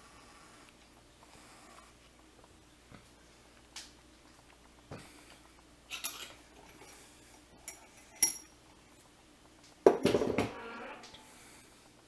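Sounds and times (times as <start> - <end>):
metal tools clinking: 5.9 - 6.4, 7.7 - 8.5
clattering knock on workbench: 9.9 - 10.5.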